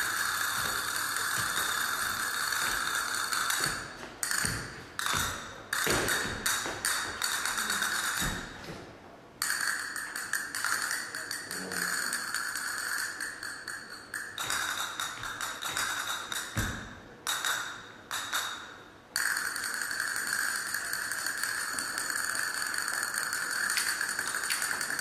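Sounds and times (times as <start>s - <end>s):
dance shoes tapping on stage: 0.0s - 8.9s, 14.4s - 17.5s.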